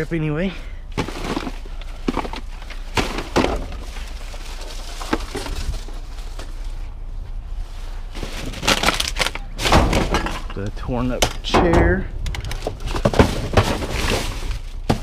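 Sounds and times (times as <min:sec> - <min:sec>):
plastic bags rustling: 0:00.8 - 0:10.6, 0:12.4 - 0:15.0
objects knocking and clattering: 0:01.0 - 0:04.0, 0:09.6 - 0:15.0.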